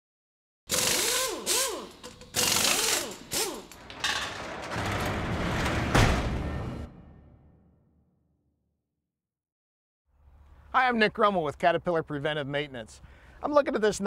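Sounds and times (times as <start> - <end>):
mechanical clatter with whirs: 0.8 - 6.9
low rattling rumble: 3.8 - 7.0
heavy hit: 4.7 - 7.9.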